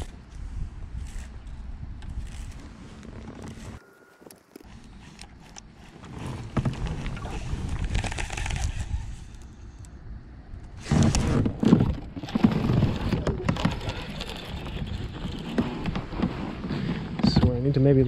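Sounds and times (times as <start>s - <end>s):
water under hull: 2.2s - 9.5s, 10.8s - 17.9s
kayak pedal drive rumble: 4.4s - 9.2s, 10.8s - 18.0s.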